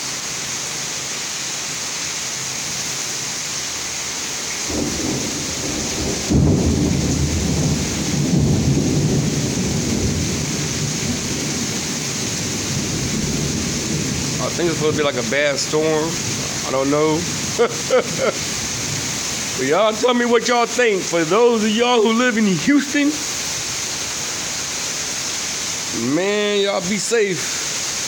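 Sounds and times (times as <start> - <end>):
heavy rain pouring: 0.0 - 28.0
thunder rumbling: 4.6 - 24.7.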